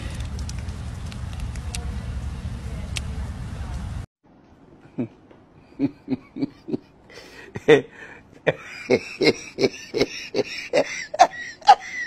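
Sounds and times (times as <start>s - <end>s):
man laughing: 4.9s - 12.0s.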